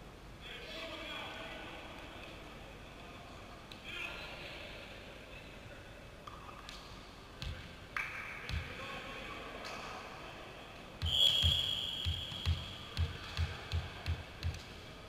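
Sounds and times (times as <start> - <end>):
volleyball bouncing on floor: 7.4 - 8.8, 11.0 - 14.7
referee's whistle: 11.0 - 12.8.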